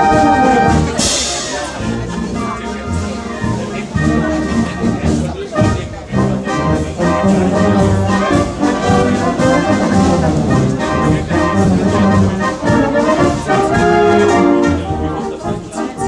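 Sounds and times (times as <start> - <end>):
wind band playing: 0.0 - 16.0.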